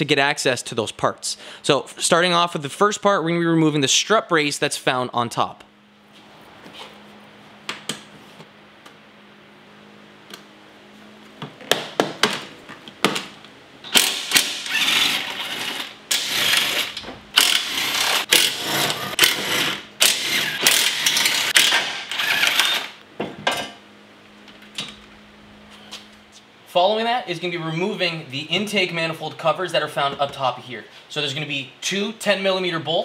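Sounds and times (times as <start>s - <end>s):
cordless power tool whirring: 13.9s - 23.0s.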